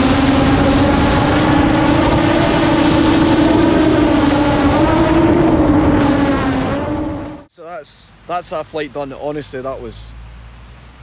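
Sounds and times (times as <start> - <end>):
drone propellers whining: 0.0 - 7.5
low rumble: 0.0 - 7.5.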